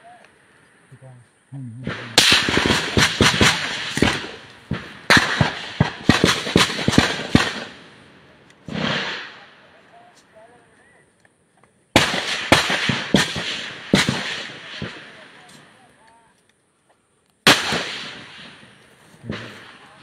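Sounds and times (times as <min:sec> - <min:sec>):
rifle gunfire in rapid bursts: 0:02.2 - 0:07.9, 0:12.0 - 0:15.4, 0:17.5 - 0:20.0.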